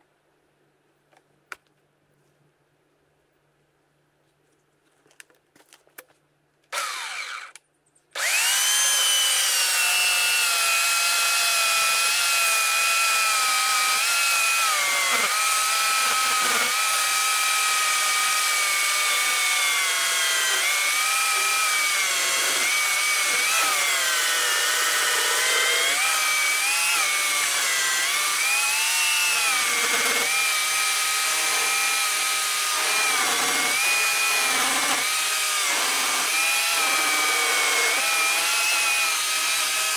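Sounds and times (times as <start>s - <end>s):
electric chainsaw cutting log: 6.7s - 7.6s, 8.2s - 39.9s.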